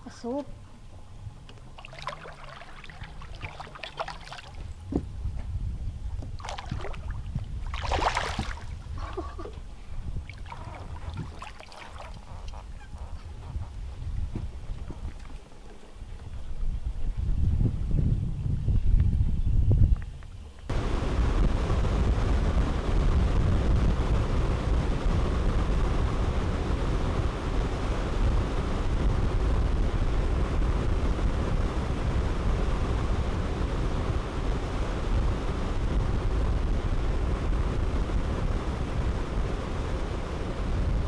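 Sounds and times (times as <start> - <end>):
wind rumble on microphone: 0.0 - 41.0
boat engine: 1.7 - 4.7
water rushing: 1.7 - 4.7, 6.4 - 9.3, 10.3 - 12.4.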